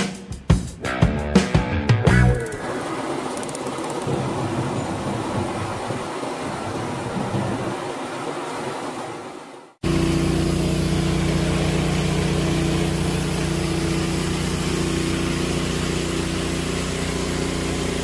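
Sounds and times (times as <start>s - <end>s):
pressure washer motor drone: 2.2s - 7.5s, 9.8s - 18.0s
water jets hissing on asphalt: 2.6s - 18.0s.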